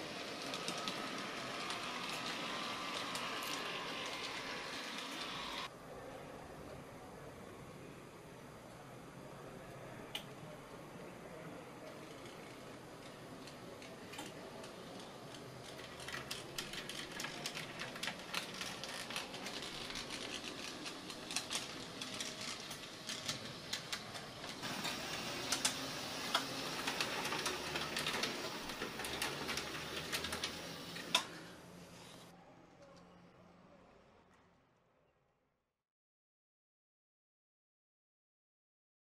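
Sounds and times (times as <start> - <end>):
wheels clicking on rails: 0.0 - 5.7, 11.8 - 31.4.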